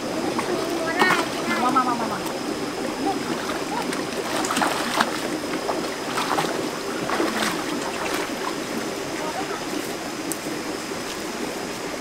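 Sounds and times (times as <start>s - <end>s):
feet splashing through water: 0.0s - 11.9s
stream running over rocks: 0.0s - 12.0s.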